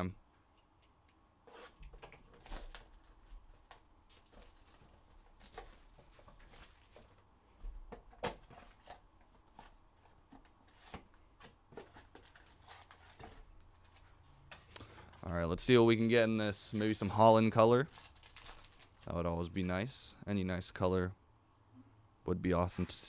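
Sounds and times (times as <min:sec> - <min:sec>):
cardboard box handling rustles: 0:03.6 - 0:07.2.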